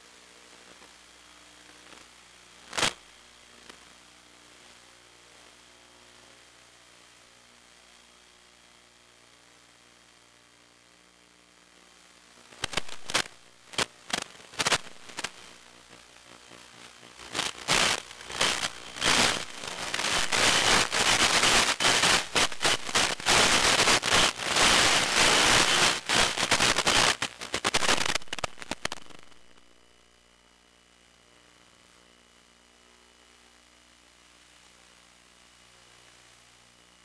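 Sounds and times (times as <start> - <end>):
radio static crackling and hiss: 0.0 - 37.0.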